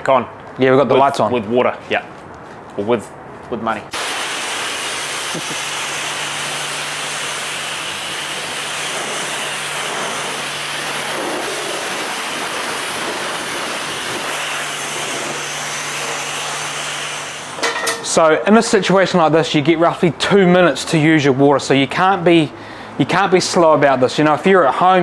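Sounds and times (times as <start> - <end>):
high-pressure water spray hissing: 3.9 - 17.7.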